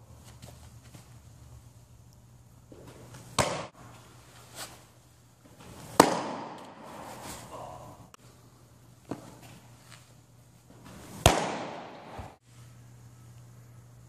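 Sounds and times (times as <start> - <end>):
low steady hum: 0.0 - 14.0
baseball smacking into mitt: 2.8 - 3.7, 5.8 - 7.2, 10.8 - 12.4.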